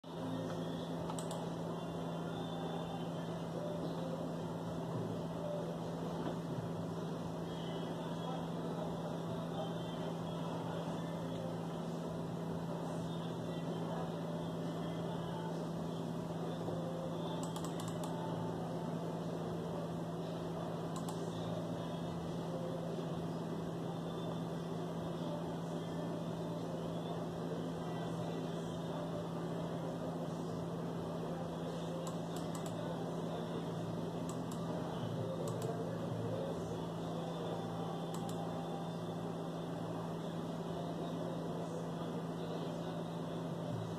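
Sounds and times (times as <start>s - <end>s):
low electrical hum: 0.0s - 43.9s
faint clicks: 0.5s - 1.4s.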